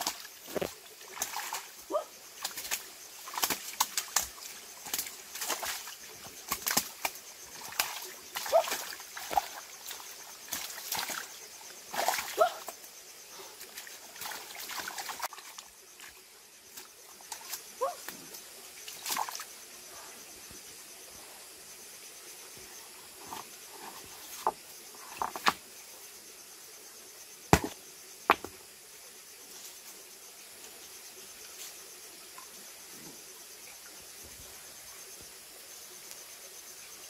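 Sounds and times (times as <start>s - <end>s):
hands splashing in stream: 2.4s - 11.3s.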